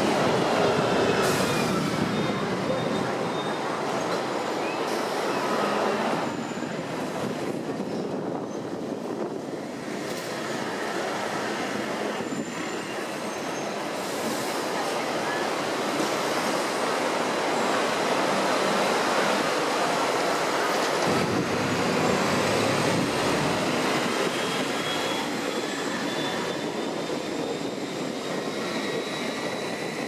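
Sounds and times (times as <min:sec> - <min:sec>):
tram rumbling and rattling: 0:00.0 - 0:30.0.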